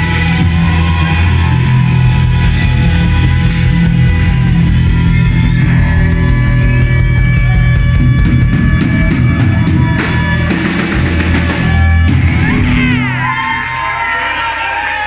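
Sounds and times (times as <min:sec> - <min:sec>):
live rock band playing: 0:00.0 - 0:15.0
people shouting: 0:11.6 - 0:15.0.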